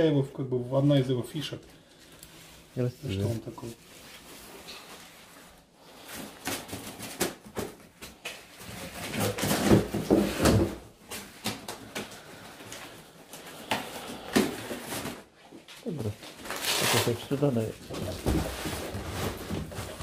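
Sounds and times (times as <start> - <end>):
things being handled: 1.9 - 20.0
knocks and thumps: 9.2 - 10.9, 17.9 - 20.0.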